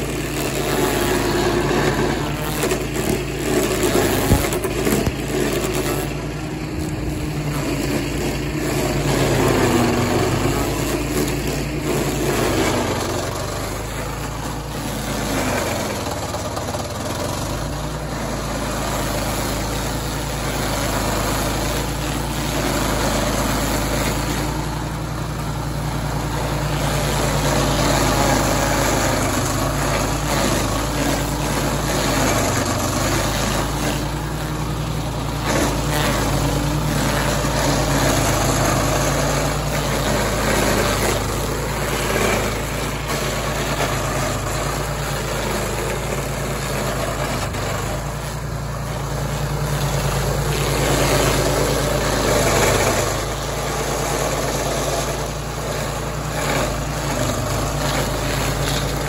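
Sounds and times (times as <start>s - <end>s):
cutter wheel grinding stump: 0.0s - 59.0s
small petrol engine running: 0.0s - 59.0s.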